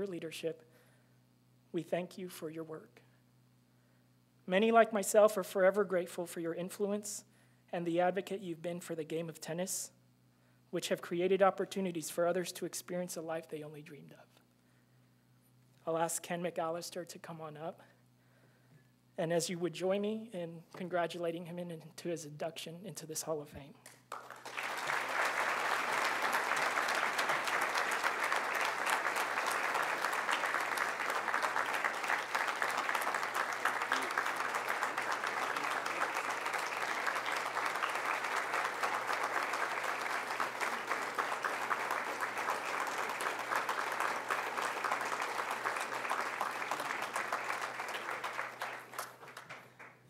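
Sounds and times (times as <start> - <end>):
audience applauding: 24.1 - 50.0.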